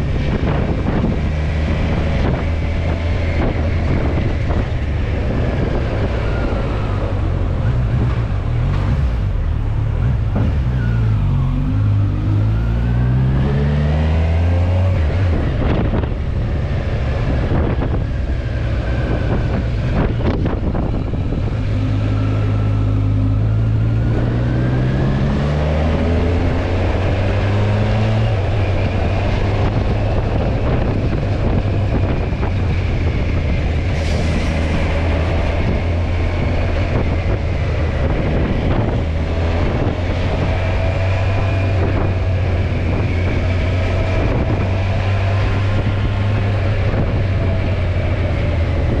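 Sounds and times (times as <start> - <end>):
motorcycle engine accelerating: 0.0 - 49.0
wind noise on microphone: 0.0 - 49.0.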